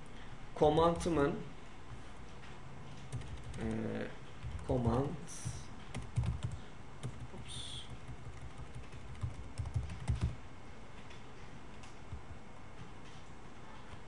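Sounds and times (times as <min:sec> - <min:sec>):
computer keyboard typing: 0:03.0 - 0:10.4.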